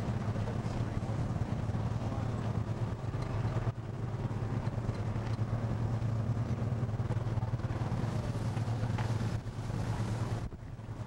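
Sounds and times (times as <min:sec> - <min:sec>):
boat engine drone: 0:00.0 - 0:11.0
rough sea noise: 0:00.0 - 0:11.0
wind: 0:00.0 - 0:11.0.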